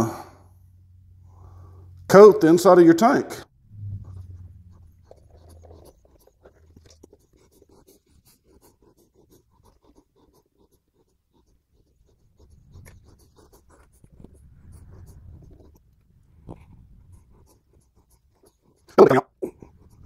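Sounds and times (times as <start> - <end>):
faint scratching on metal tank: 3.4 - 9.8, 12.5 - 17.6.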